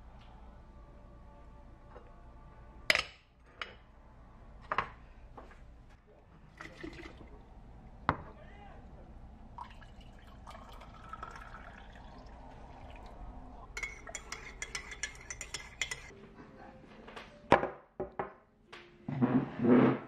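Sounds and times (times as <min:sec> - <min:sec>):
coffee pouring into mug: 0:06.5 - 0:07.4, 0:09.6 - 0:13.2
teaspoon clinking in mug: 0:13.8 - 0:16.1.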